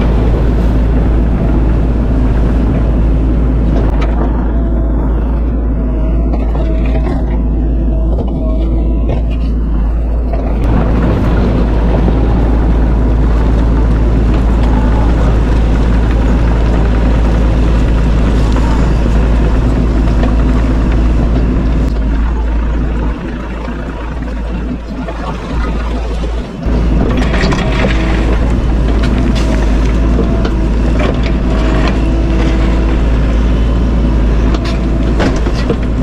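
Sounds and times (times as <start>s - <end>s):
excavator diesel engine running: 0.0s - 36.0s.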